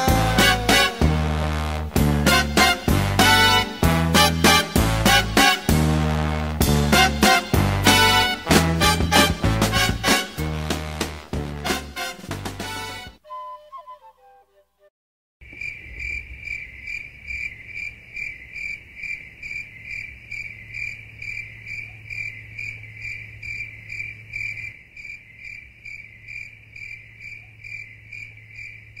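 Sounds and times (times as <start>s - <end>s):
crickets chirping: 15.4s - 29.0s.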